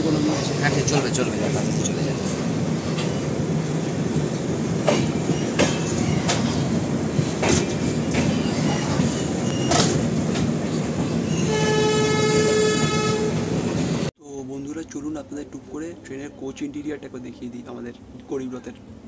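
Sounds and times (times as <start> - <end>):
train wheels rumbling on rails: 0.0 - 14.1
clacks over rail joints: 4.8 - 10.6
train horn: 11.3 - 13.6.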